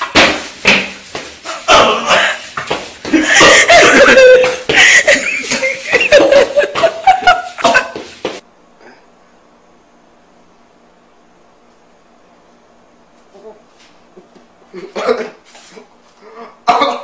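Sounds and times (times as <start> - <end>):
person laughing breathlessly: 3.1 - 8.2
person coughing and sputtering: 7.6 - 8.0.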